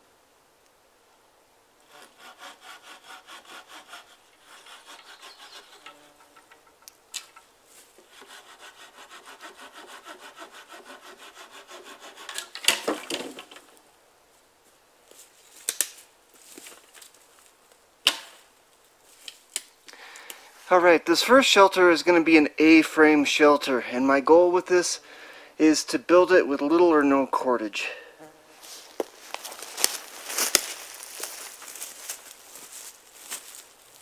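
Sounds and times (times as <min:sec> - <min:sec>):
hand saw cutting log: 0:01.8 - 0:06.8, 0:08.0 - 0:13.6
wood cracking loudly: 0:12.3 - 0:13.8.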